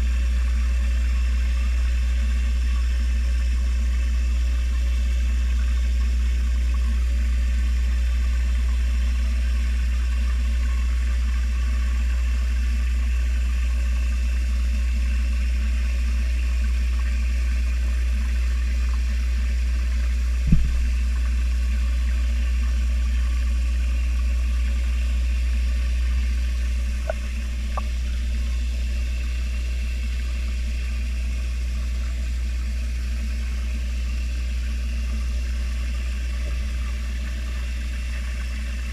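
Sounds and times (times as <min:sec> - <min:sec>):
underwater machine hum: 0:00.0 - 0:38.9
dull knock: 0:20.5 - 0:21.0.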